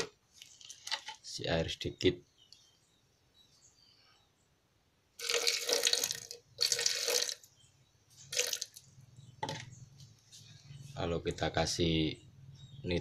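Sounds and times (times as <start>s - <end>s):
water pouring into plastic cup: 5.2s - 7.5s, 8.3s - 8.8s.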